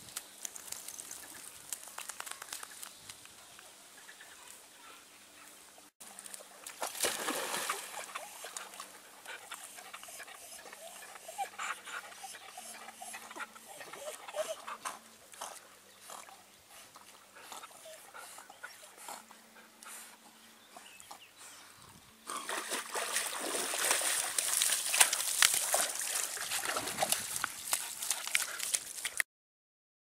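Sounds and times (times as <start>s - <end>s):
splashing water: 6.0s - 8.9s, 22.3s - 29.2s
water lapping and sloshing: 6.5s - 9.5s, 22.3s - 29.2s
dog sounds: 7.8s - 21.2s
water dripping from dog's coat: 23.5s - 29.2s.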